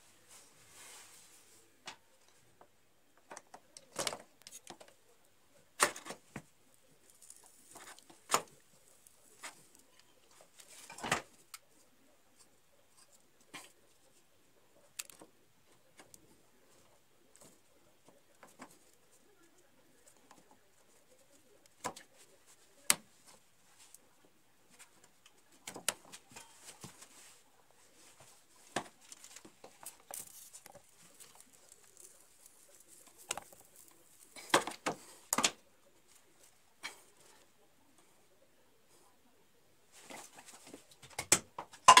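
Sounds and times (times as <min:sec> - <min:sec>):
clicks and knocks on plastic pipes: 0:40.9 - 0:42.0.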